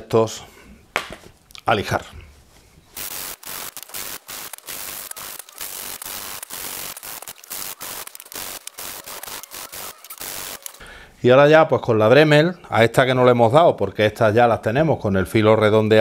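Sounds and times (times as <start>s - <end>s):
wood sanding strokes: 2.9s - 10.8s.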